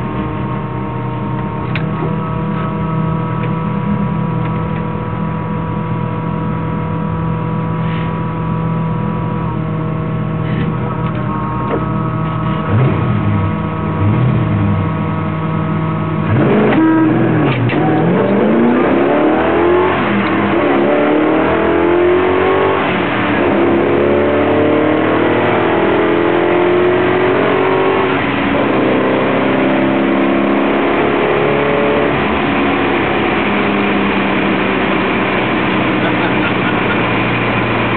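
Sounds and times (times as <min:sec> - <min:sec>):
car engine revving hard: 0:09.9 - 0:37.9.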